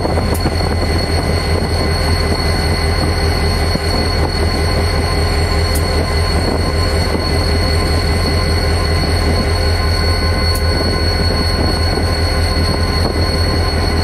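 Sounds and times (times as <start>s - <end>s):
diesel locomotive drone: 0.0s - 14.0s
high-pitched whine: 0.0s - 14.0s.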